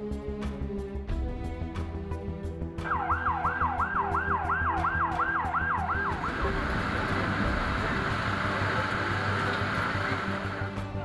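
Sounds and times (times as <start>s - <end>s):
ambulance siren yelping: 2.8s - 7.9s
steady rushing noise: 6.0s - 11.0s.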